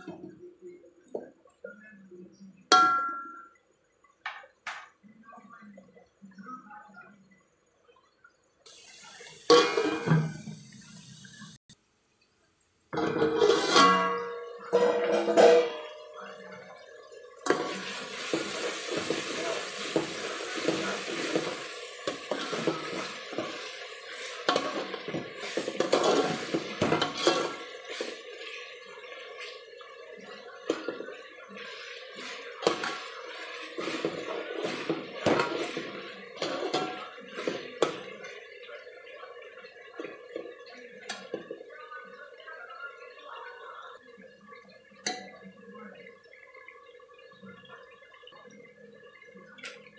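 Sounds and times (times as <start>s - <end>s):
cooking liquid hissing: 8.4s - 11.6s, 12.9s - 49.9s
metal ladle scraping pot: 9.5s - 10.4s, 13.0s - 16.0s, 17.4s - 29.7s, 30.6s - 38.5s.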